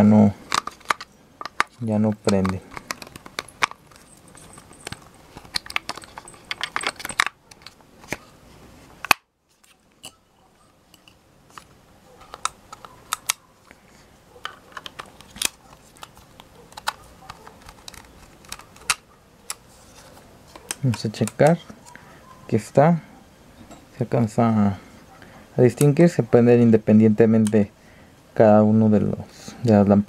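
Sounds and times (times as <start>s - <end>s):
plastic toy parts clicking: 0.5s - 7.8s, 12.3s - 13.4s, 14.4s - 19.6s.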